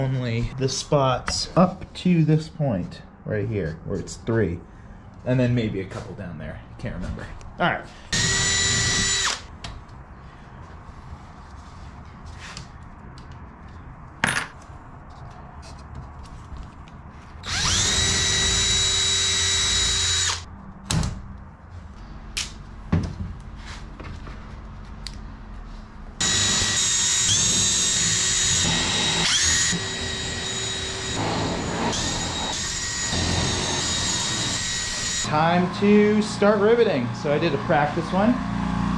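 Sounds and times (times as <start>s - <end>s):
power drill whining: 8.1s - 9.5s, 17.4s - 20.5s, 26.2s - 35.3s
drill clicks: 8.2s - 9.5s, 17.4s - 20.4s.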